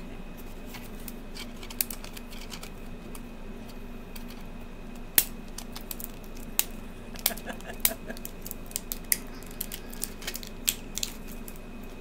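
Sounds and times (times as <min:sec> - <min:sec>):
steady low hum: 0:00.0 - 0:12.0
hands handling plastic toy: 0:07.2 - 0:11.6.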